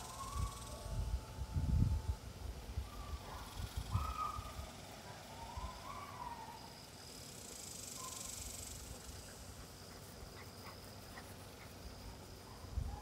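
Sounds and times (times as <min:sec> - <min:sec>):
insect buzzing drone: 0:00.0 - 0:13.0.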